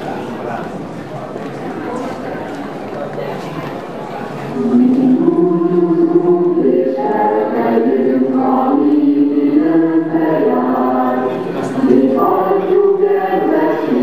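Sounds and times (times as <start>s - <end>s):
group of people singing: 4.6s - 14.0s.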